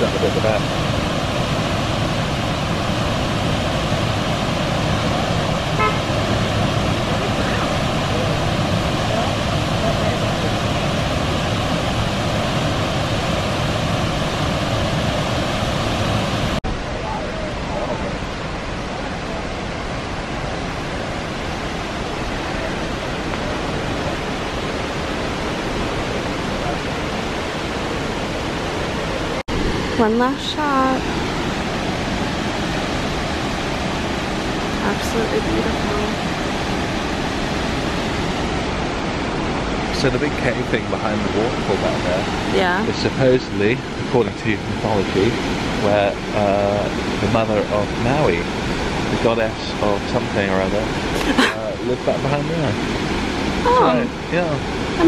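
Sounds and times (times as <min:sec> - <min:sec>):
waterfall rushing: 0:00.0 - 0:55.0
short high toot: 0:05.8 - 0:06.2.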